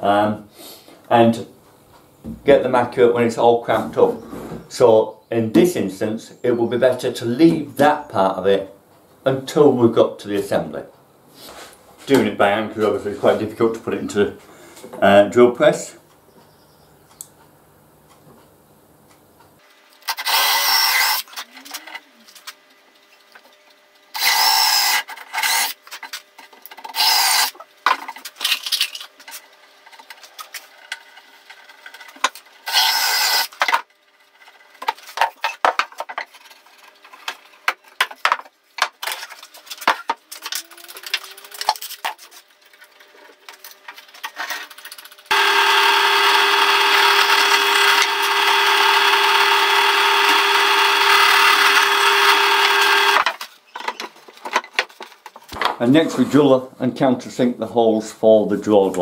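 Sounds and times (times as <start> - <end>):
cordless drill boring into wood: 20.2 - 21.2, 24.2 - 25.7, 26.9 - 27.5, 32.7 - 33.5, 45.3 - 53.2
drill press humming: 45.3 - 53.3.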